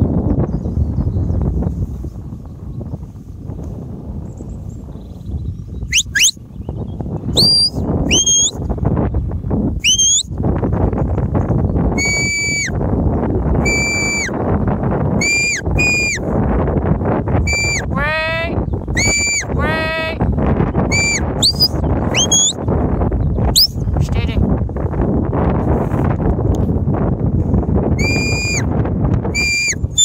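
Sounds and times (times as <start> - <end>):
wind rumble on microphone: 0.0 - 30.0
whistle commands: 5.9 - 6.4, 7.4 - 8.6, 9.8 - 10.3, 12.0 - 12.7, 13.6 - 14.3, 15.2 - 16.2, 17.5 - 17.8, 19.0 - 19.5, 20.9 - 22.6, 23.6 - 23.8, 28.0 - 28.7, 29.4 - 30.0.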